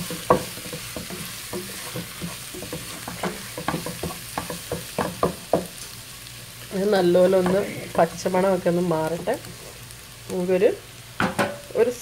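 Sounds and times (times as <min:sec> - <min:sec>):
wooden spatula scraping a pan: 0:00.0 - 0:05.7
spatula knocking against pan: 0:00.0 - 0:05.8
faint sizzle of frying: 0:00.0 - 0:12.0.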